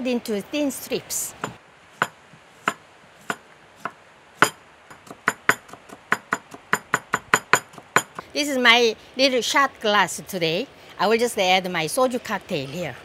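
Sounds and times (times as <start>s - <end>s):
knife chopping on wooden board: 1.4s - 8.2s.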